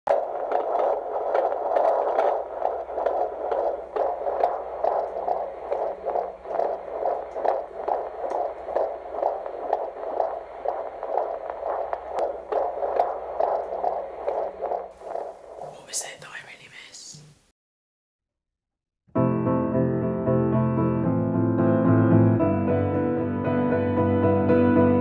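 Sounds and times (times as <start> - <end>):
whooshing fetal heartbeat pulse: 0.0 - 16.7
faint hum: 0.1 - 17.4.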